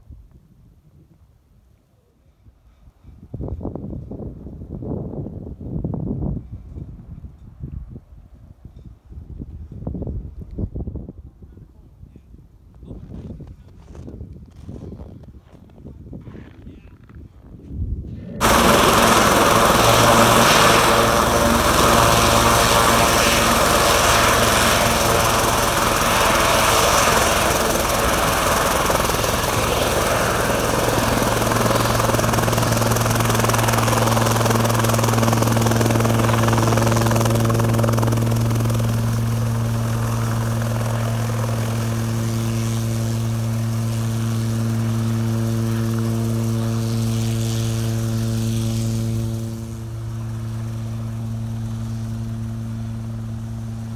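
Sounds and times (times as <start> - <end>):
helicopter rotors humming: 18.4 - 53.9.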